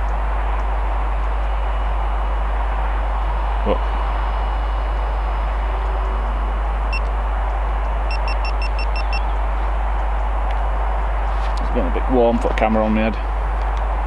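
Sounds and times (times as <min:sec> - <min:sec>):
outdoor rumble and hiss: 0:00.0 - 0:14.0
electronic camera beeps: 0:08.1 - 0:09.3.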